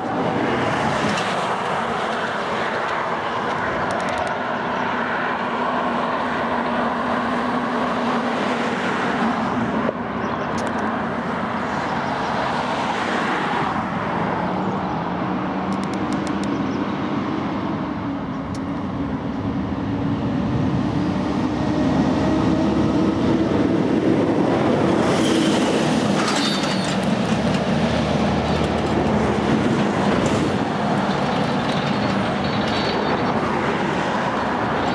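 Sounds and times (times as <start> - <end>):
heavy vehicle traffic rumbling: 0.0 - 34.9.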